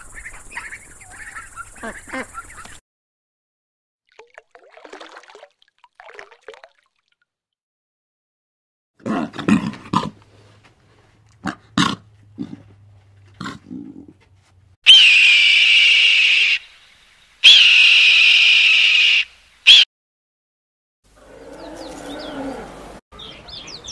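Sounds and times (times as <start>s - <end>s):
lions growling: 11.4s - 14.2s, 21.2s - 22.9s
hawk screeching: 14.8s - 16.7s, 17.4s - 19.8s.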